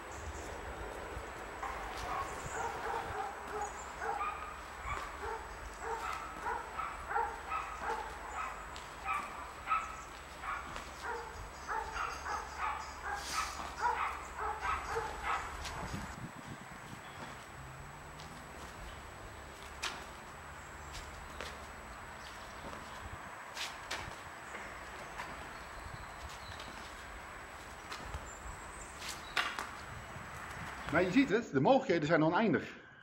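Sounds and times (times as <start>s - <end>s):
dog yapping: 1.6s - 15.9s.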